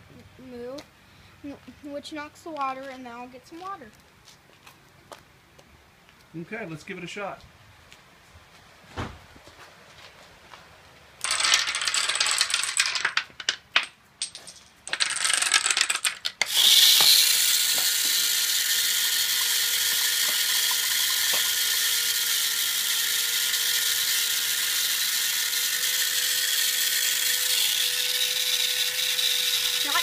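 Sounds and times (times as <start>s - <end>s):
dominoes and marble clattering: 11.2s - 30.0s
small electric motor whining: 16.4s - 30.0s.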